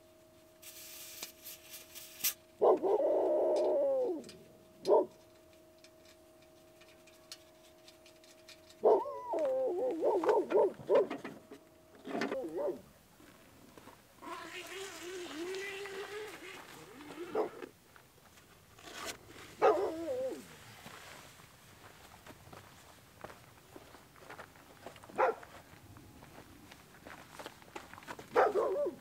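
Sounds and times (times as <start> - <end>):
faint steady hum: 0.0 - 29.0
brief hiss: 0.6 - 2.4
dog whining: 2.6 - 5.1, 8.8 - 11.2, 12.1 - 12.8, 16.9 - 17.7, 19.6 - 20.5.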